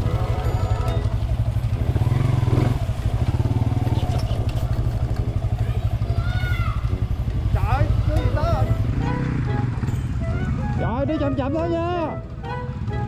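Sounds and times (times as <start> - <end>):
motorcycle engine rumble: 0.0 - 13.0.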